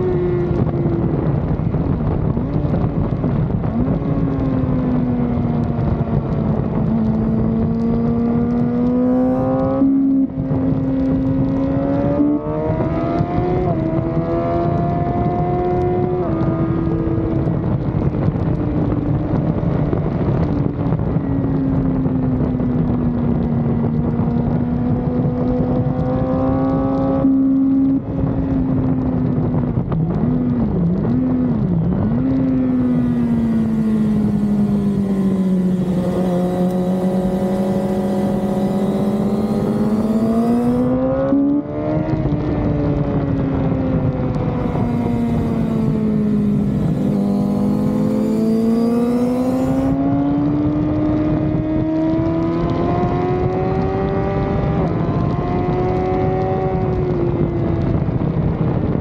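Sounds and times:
wind rush: 0.0s - 27.2s, 28.8s - 59.0s
motorcycle engine revving: 0.0s - 58.6s
gear shifts: 31.1s - 41.4s, 44.4s - 50.1s.

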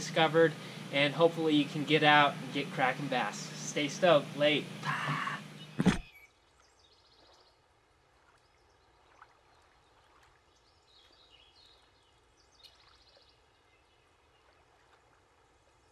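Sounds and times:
faint outdoor ambience: 0.0s - 6.8s
soft high bird chirps: 5.2s - 7.5s.

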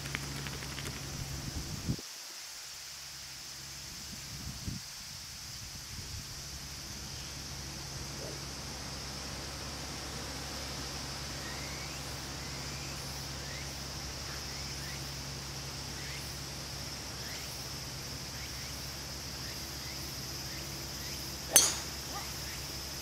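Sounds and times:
steady high hiss: 0.0s - 23.0s
golf club striking ball: 21.5s - 22.4s.

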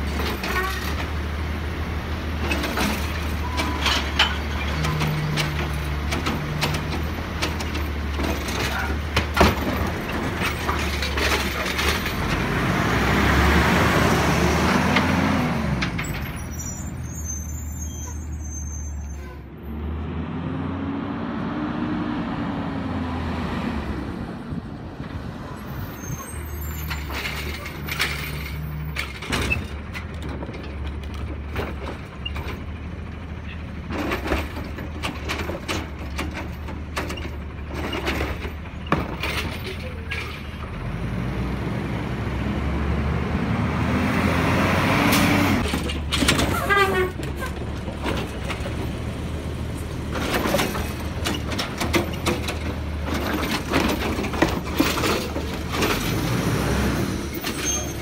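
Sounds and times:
knocks and clatters: 2.4s - 12.6s, 26.7s - 32.9s, 33.8s - 40.5s, 45.1s - 49.1s, 50.0s - 56.3s
garbage truck diesel engine revving: 12.1s - 15.9s, 40.6s - 46.4s, 52.1s - 58.0s.

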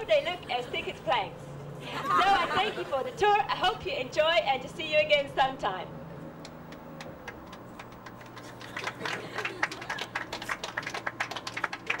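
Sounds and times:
group clapping: 6.4s - 12.0s.

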